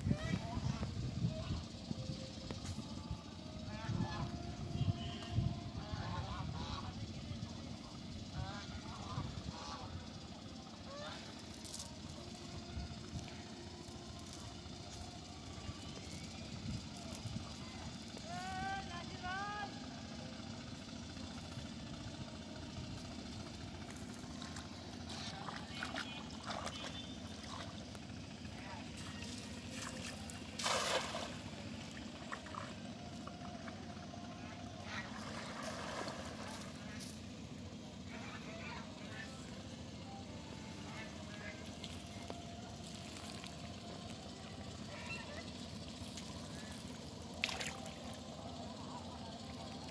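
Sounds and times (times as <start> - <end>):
bare feet splashing in water: 23.8 - 27.8, 29.0 - 32.8, 46.1 - 48.2.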